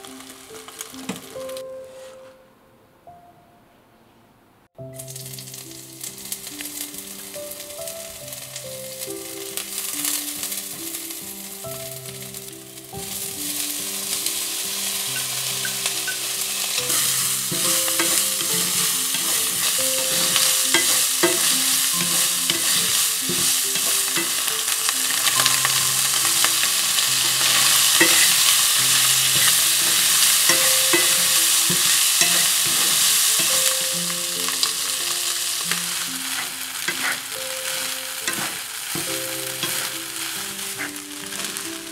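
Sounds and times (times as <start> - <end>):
food sizzling in frying pan: 0.0 - 1.6, 4.9 - 41.9
wooden spatula scraping pan: 15.1 - 33.9, 35.7 - 41.6.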